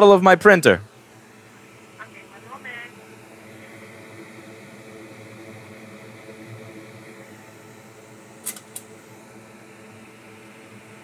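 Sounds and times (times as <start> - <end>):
electrical hum and fan whirr: 0.0 - 11.0
sharp clicks: 8.4 - 8.9.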